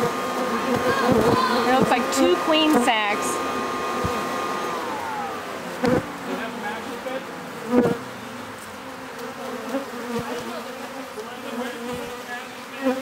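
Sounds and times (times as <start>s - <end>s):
vacuum motor winding down: 0.0s - 8.2s
bees buzzing: 0.0s - 13.0s.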